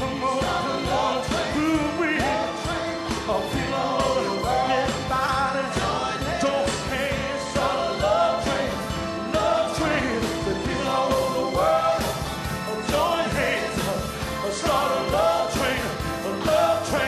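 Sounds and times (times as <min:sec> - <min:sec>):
drums: 0:00.0 - 0:17.0.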